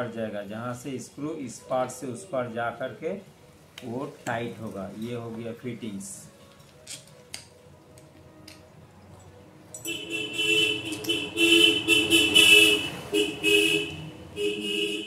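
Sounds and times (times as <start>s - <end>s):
vehicle horn honking: 9.9s - 15.0s.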